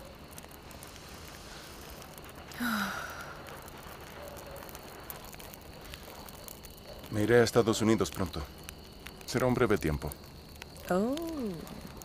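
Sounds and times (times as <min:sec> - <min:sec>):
breathy sigh: 0:02.5 - 0:03.6.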